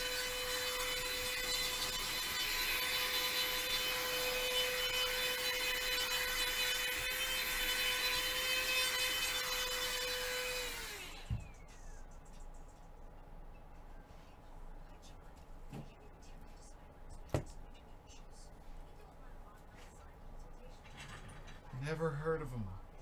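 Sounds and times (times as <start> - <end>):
motor winding down: 0.0 - 11.6
electric motor whining: 0.0 - 11.8.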